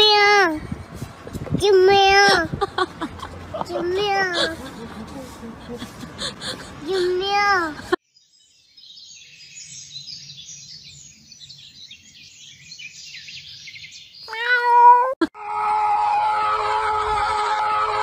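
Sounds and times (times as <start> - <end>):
loud cat meow: 14.3 - 15.2
steady high wail: 15.4 - 18.0.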